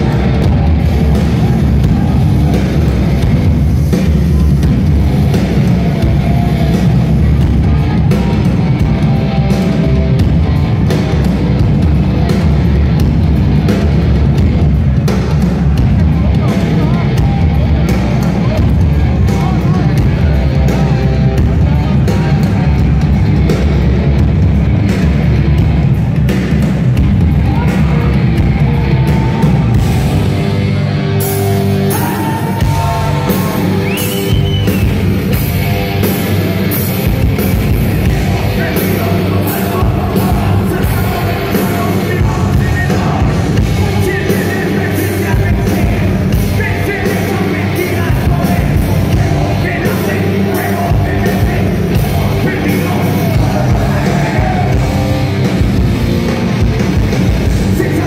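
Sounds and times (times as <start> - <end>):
audience yelling: 0.0 - 24.0, 25.0 - 58.0
live rock band playing: 0.0 - 58.0
person singing: 31.4 - 35.0, 37.8 - 55.3.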